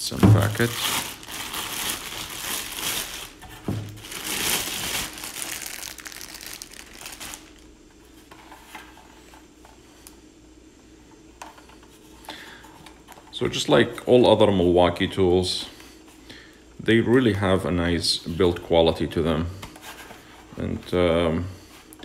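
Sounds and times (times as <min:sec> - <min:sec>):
plastic bag crinkling: 0:00.4 - 0:07.7.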